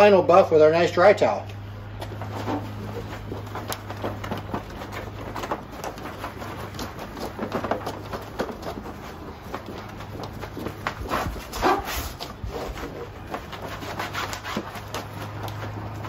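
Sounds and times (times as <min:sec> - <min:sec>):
towel rubbing headlight lens: 0:02.0 - 0:16.0.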